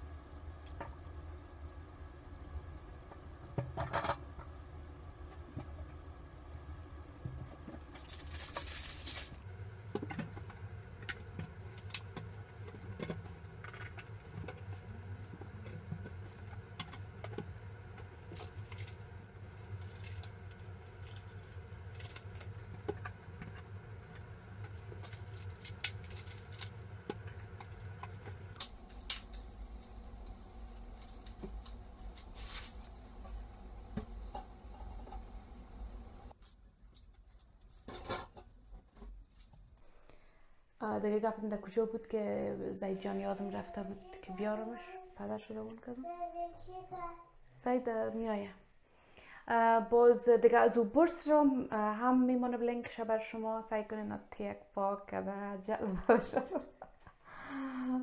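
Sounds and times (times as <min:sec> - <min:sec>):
low steady hum: 0:00.0 - 0:46.0.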